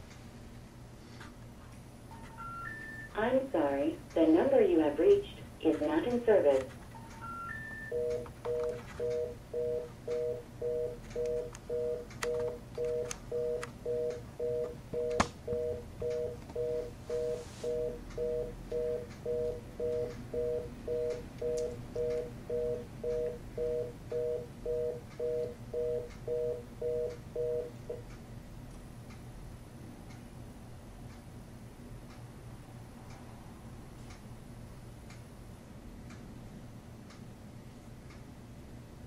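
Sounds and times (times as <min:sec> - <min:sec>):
telephone fast-busy tone: 0:02.1 - 0:03.2, 0:07.0 - 0:27.8.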